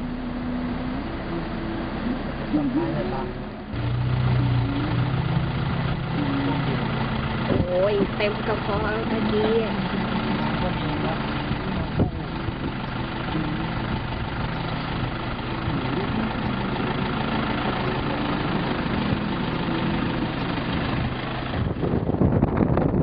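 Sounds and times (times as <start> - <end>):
engine idling: 0.0 - 23.0
rough rushing wind noise: 11.2 - 23.0.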